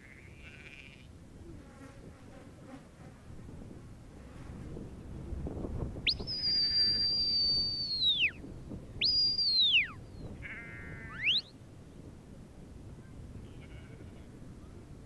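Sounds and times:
whistle commands: 6.1 - 8.4, 9.0 - 10.0, 11.1 - 11.5.

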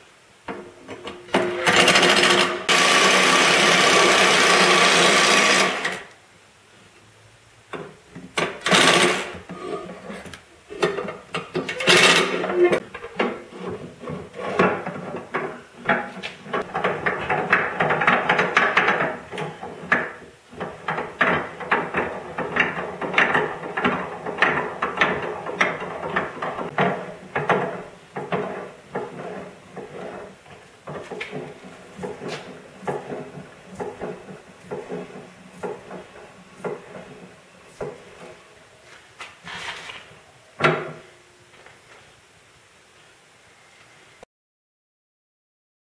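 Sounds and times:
metal vise scraping and rattling: 8.4 - 38.4.

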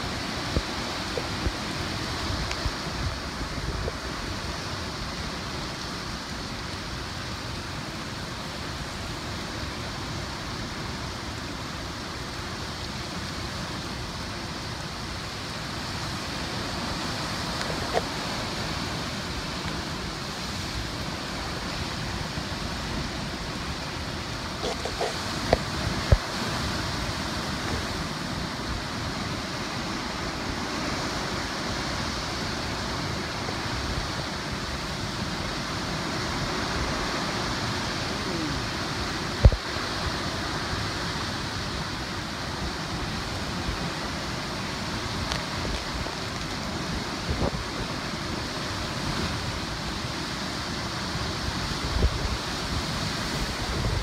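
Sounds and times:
wind gusts hitting microphone: 0.0 - 5.2, 16.5 - 49.9, 51.2 - 54.0
driving rain: 0.0 - 54.0
hurricane wind: 0.0 - 54.0.

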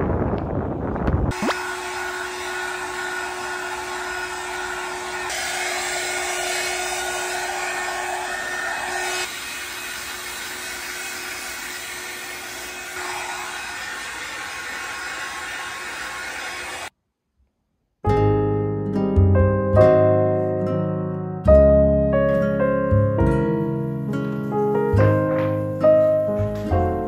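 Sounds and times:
hair dryer motor whine: 1.3 - 16.9.

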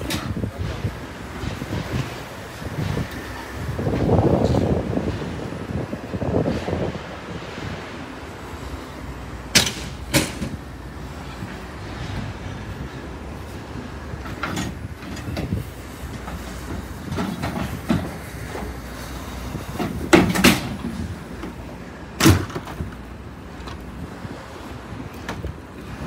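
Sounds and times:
junk knocking and clattering: 14.1 - 18.8, 19.8 - 21.6, 22.2 - 23.8.

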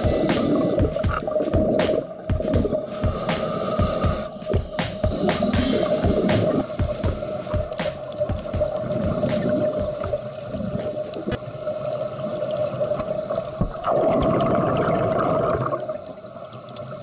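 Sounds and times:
rush of bubbles: 0.0 - 4.4, 5.1 - 11.4, 13.2 - 16.1
steady tone: 0.0 - 10.4
underwater bubbles gurgling: 0.0 - 17.0.

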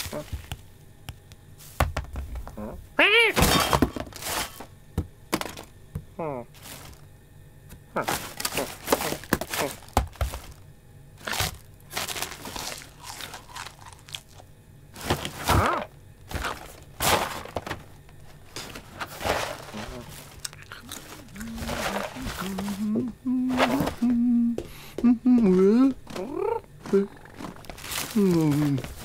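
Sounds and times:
cardboard and packaging rustling: 3.4 - 4.7, 6.6 - 7.0, 8.0 - 10.6, 11.2 - 14.3, 15.0 - 24.1, 26.1 - 29.0.

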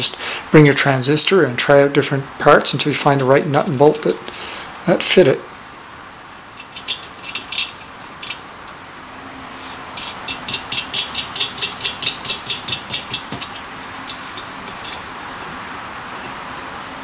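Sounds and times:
nut and bolt clicking: 6.5 - 8.8, 9.9 - 15.1.

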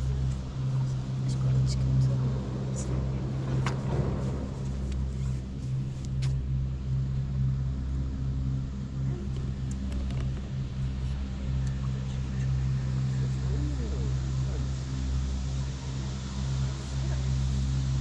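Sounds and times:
cable car machinery hum: 0.0 - 18.0.

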